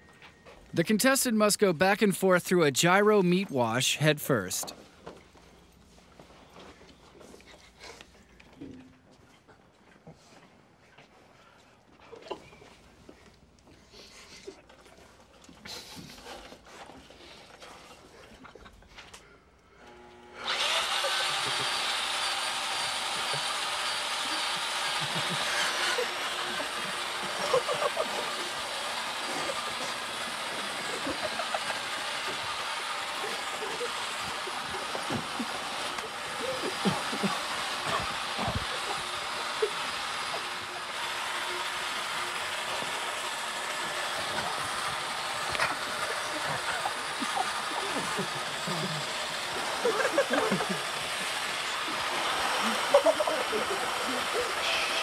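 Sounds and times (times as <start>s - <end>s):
motor drone of spinning rig: 20.0s - 54.7s.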